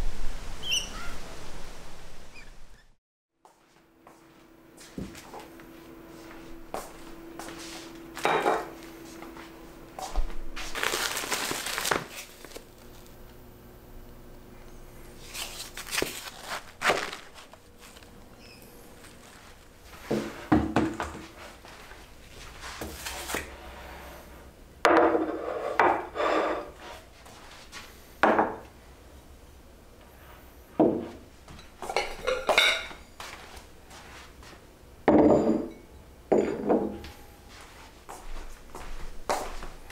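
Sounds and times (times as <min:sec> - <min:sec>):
objects set down on countertop: 0:08.2 - 0:08.7
plastic packaging crinkling: 0:10.6 - 0:13.2, 0:15.2 - 0:18.2.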